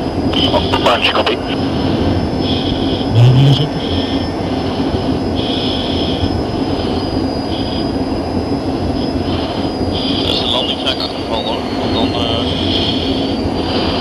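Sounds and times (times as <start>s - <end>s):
jet cockpit roar: 0.0s - 14.0s
low rising tone: 3.1s - 3.9s.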